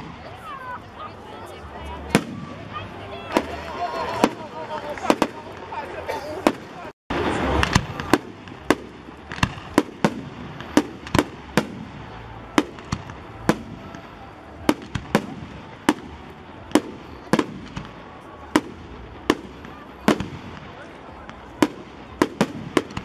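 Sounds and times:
fireworks bursting in sharp bangs: 0:00.0 - 0:00.8, 0:02.0 - 0:23.0.

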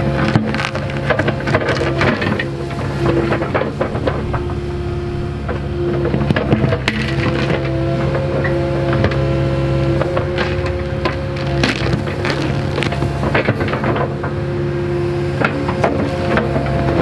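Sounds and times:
roots cracking and snapping: 0:00.0 - 0:04.7, 0:05.4 - 0:14.2
excavator engine under load: 0:00.0 - 0:17.0
hydraulic whine: 0:00.0 - 0:17.0.

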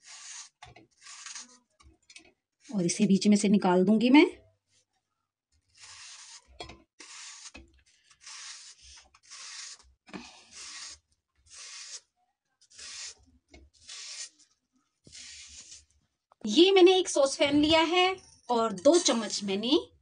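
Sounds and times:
knife slicing apple: 0:00.0 - 0:01.6, 0:05.7 - 0:12.1, 0:12.7 - 0:14.4, 0:15.0 - 0:15.9.

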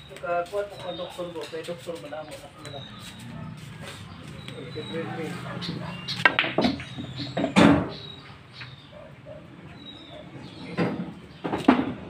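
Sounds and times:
high bird chirp: 0:00.0 - 0:11.5
birds cooing: 0:02.2 - 0:12.0
pool balls clacking: 0:05.3 - 0:08.0, 0:10.6 - 0:12.0.

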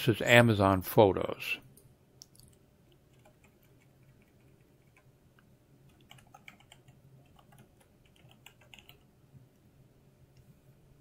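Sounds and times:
soft keyboard typing: 0:02.2 - 0:05.1, 0:05.9 - 0:09.1.

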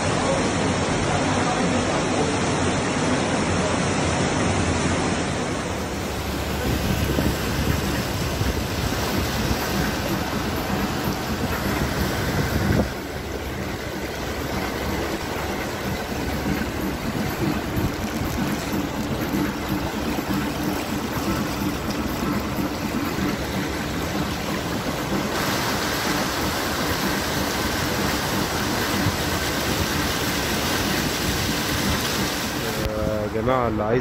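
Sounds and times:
water rushing around car: 0:00.0 - 0:34.0
car engine running: 0:05.3 - 0:33.0.

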